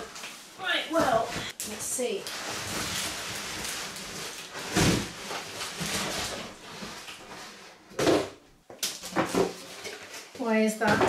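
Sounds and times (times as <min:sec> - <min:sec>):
cardboard scraping and rustling: 0:02.3 - 0:08.3.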